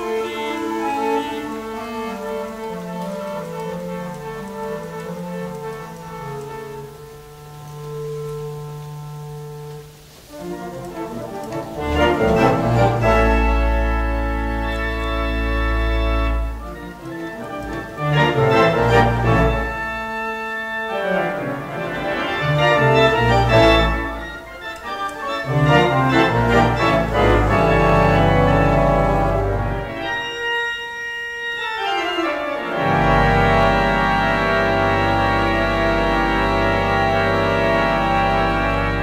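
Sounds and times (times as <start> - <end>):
theatre pipe organ chords: 0.0 - 39.0.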